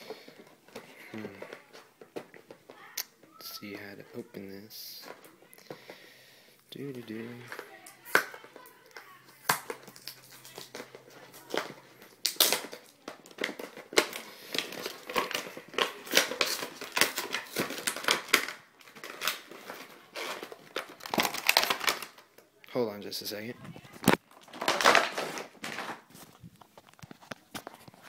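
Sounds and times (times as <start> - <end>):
cardboard and plastic box tearing: 9.4 - 22.2, 24.0 - 28.0.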